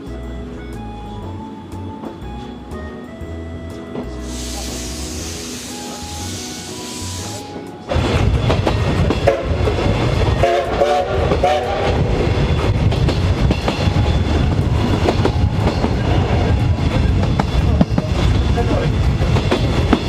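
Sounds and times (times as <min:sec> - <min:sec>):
background music: 0:00.0 - 0:17.1
train wheels clattering over rails: 0:04.0 - 0:20.0
steam locomotive whistle: 0:04.2 - 0:07.8, 0:09.2 - 0:12.2.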